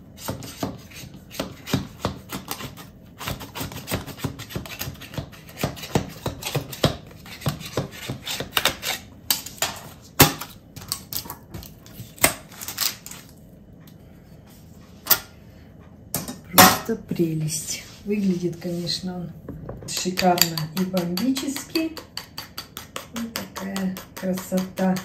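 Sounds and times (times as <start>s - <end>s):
knife scraping metal pan: 2.4s - 9.1s.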